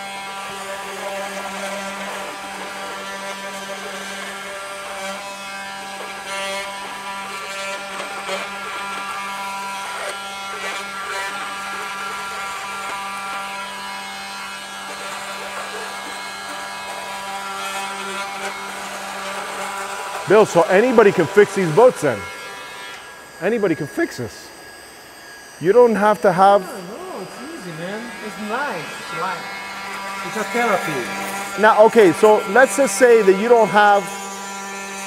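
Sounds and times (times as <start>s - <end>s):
oscillating multi-tool buzzing: 0.0s - 35.0s
blade scraping plastic: 6.0s - 21.8s.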